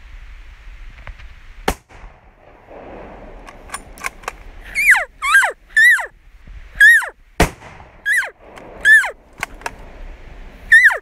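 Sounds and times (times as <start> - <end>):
elk mewing: 4.6 - 6.2, 6.8 - 7.2, 8.0 - 9.6, 10.6 - 11.0.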